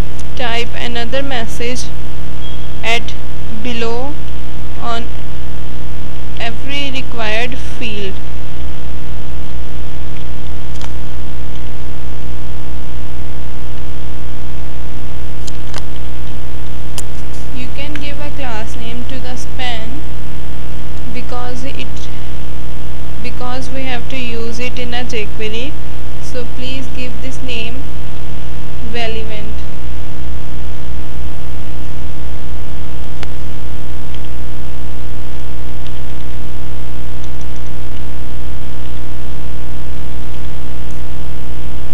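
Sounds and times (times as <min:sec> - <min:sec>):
low hum and buzz: 0:00.0 - 0:41.9
sharp click: 0:10.7 - 0:11.0.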